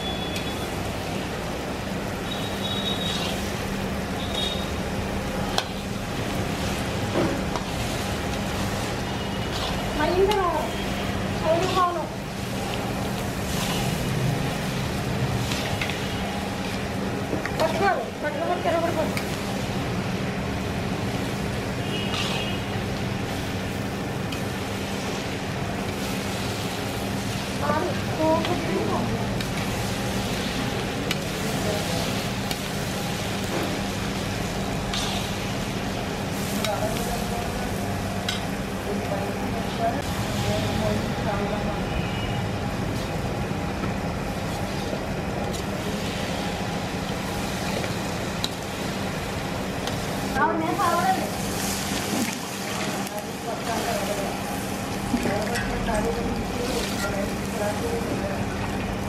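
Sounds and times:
curry sizzling: 0:00.0 - 0:59.0
stove burner roaring: 0:00.0 - 0:59.0
ladle stirring and scraping curry: 0:02.8 - 0:03.6, 0:07.4 - 0:17.9, 0:22.0 - 0:23.7, 0:32.0 - 0:35.8
metal spatula scraping pan: 0:22.0 - 0:22.6.

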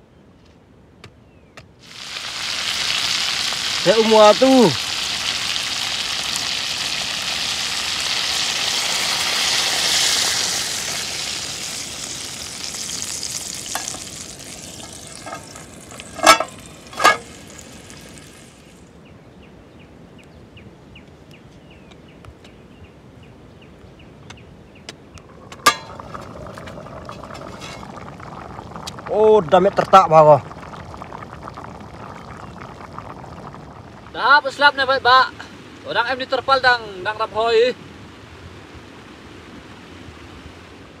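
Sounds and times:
food sizzling in hot oil: 0:01.8 - 0:18.9, 0:25.3 - 0:34.6.

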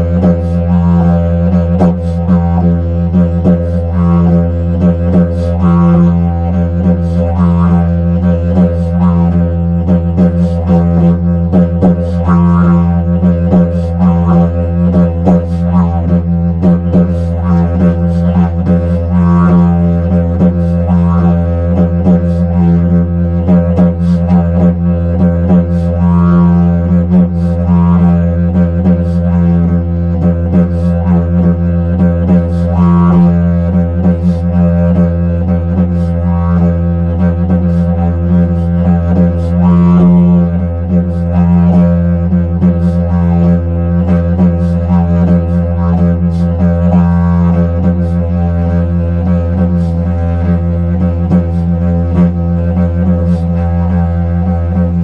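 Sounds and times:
didgeridoo drone: 0:00.0 - 0:55.0.

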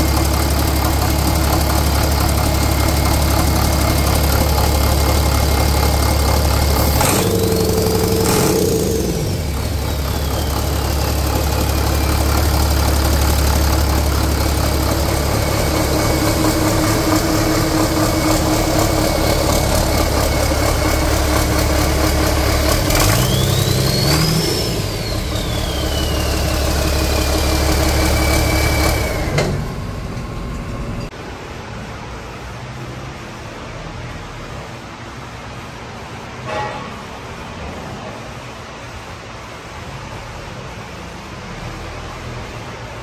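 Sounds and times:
turbocharger whine: 0:00.0 - 0:31.1
diesel engine idling and revving: 0:00.0 - 0:35.9.

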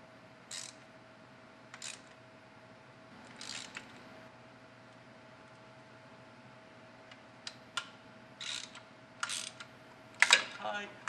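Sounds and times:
faint steady hum: 0:00.0 - 0:11.0
hand ratchet clicking: 0:00.5 - 0:00.8, 0:01.7 - 0:02.1, 0:03.4 - 0:03.8, 0:08.4 - 0:09.7.

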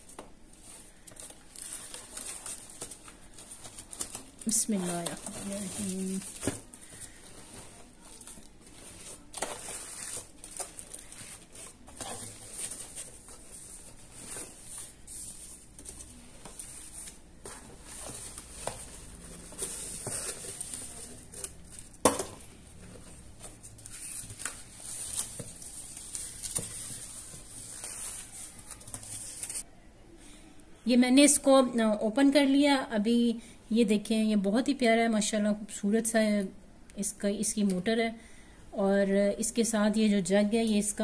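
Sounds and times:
plastic bags crinkling: 0:00.5 - 0:22.5.

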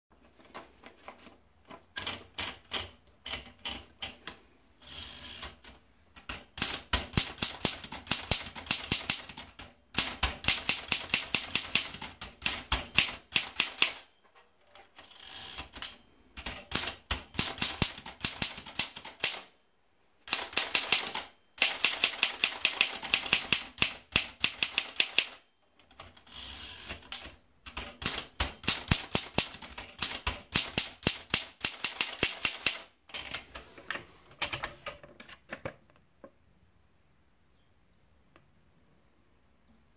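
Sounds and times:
manual typewriter clacking: 0:00.4 - 0:04.4, 0:05.4 - 0:14.1, 0:15.0 - 0:19.5, 0:20.3 - 0:33.7.

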